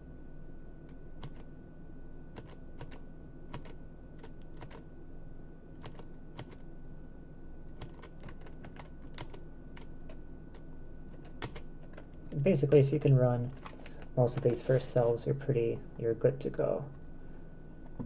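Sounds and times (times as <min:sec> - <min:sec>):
low steady hum: 0:00.0 - 0:18.0
keyboard keys clicking: 0:01.2 - 0:01.4, 0:02.4 - 0:04.8, 0:05.8 - 0:06.6, 0:07.8 - 0:12.2.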